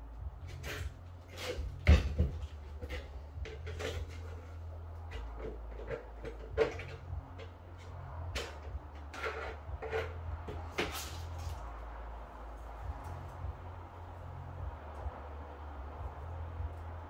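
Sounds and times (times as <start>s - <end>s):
low steady hum: 0.0s - 17.0s
hard objects knocking: 0.5s - 11.7s.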